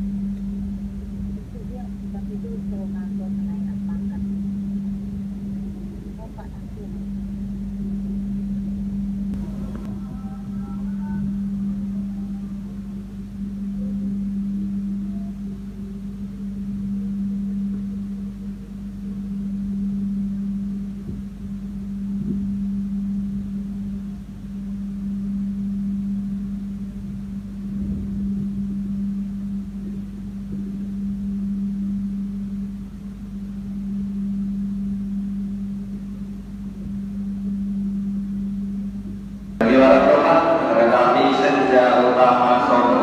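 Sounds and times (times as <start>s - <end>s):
low hum inside train carriage: 0.0s - 33.8s.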